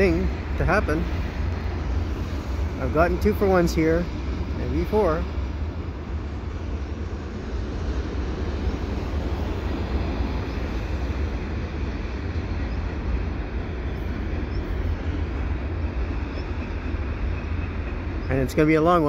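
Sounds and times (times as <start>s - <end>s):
steel wheels rolling on rail: 0.0s - 19.0s.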